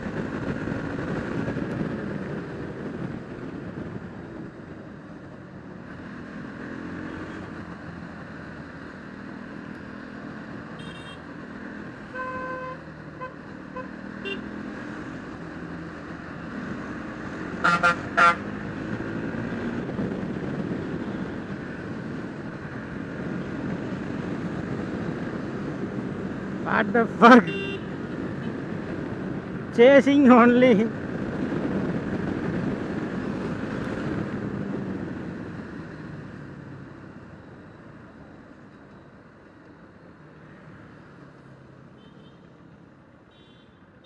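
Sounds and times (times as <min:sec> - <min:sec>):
road noise: 0:00.0 - 0:44.0
vehicle horn honks: 0:10.8 - 0:11.2, 0:12.2 - 0:14.4, 0:17.6 - 0:18.4, 0:27.4 - 0:27.9.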